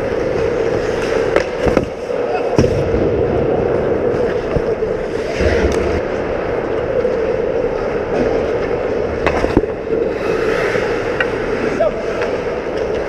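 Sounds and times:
skates scraping on ice: 0.0 - 2.6, 3.7 - 13.0.

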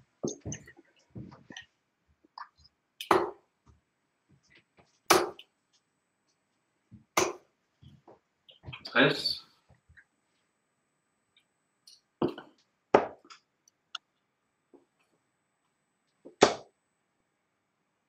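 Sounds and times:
darts striking dartboard: 5.1 - 5.4, 7.2 - 7.4, 16.4 - 16.7.

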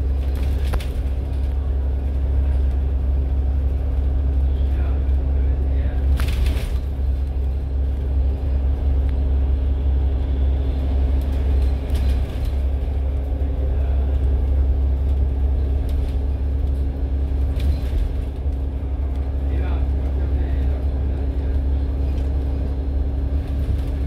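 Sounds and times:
bus engine and tyres rumbling: 0.0 - 24.0.

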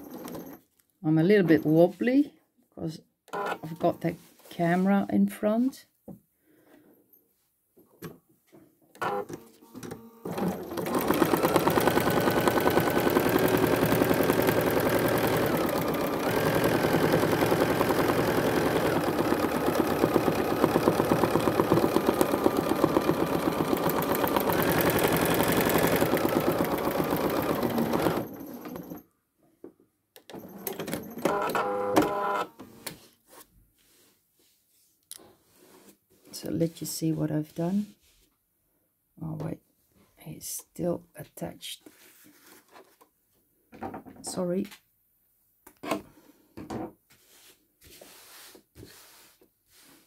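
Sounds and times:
sewing machine needle chatter: 10.3 - 29.0.

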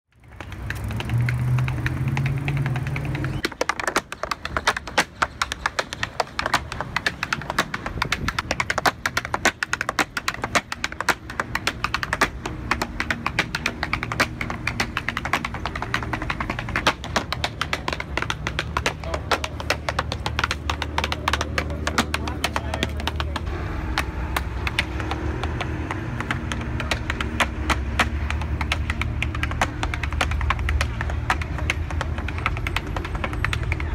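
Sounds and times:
tap shoes on wooden board: 0.1 - 33.9
low steady rumble: 10.8 - 33.9.

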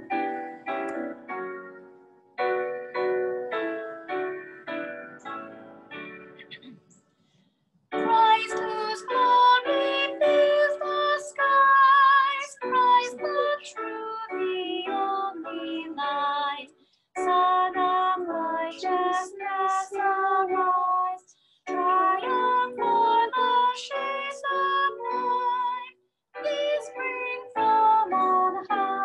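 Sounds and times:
woman singing a hymn: 8.0 - 29.0.

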